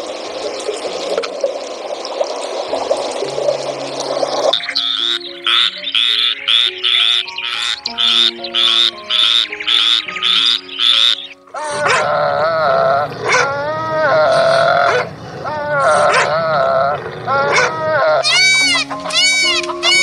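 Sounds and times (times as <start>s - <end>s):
frog croaking: 3.5s - 20.0s
dog vocalising: 11.6s - 18.8s.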